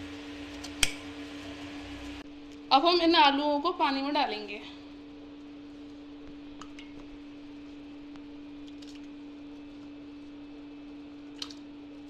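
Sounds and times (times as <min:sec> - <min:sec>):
small splashes in water: 0:11.3 - 0:11.6.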